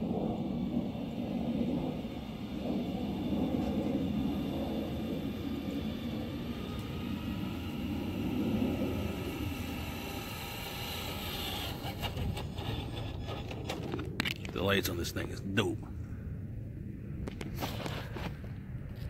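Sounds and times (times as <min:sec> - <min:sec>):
toy truck tyres rumbling: 0:00.0 - 0:14.9
motor and gears whining: 0:00.0 - 0:15.2.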